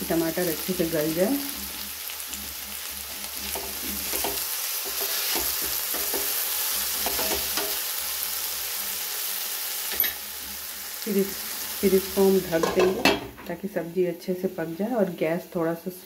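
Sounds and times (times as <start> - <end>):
vegetables sizzling in oil: 0.0 - 16.0
wooden spatula scraping pan: 1.6 - 7.8.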